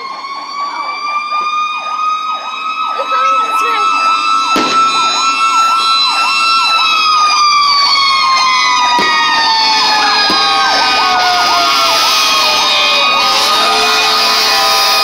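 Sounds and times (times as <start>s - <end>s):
siren warbling fast: 0.0s - 15.0s
steady siren tone: 0.0s - 15.0s
sharp pop: 4.6s - 5.0s, 8.9s - 9.3s.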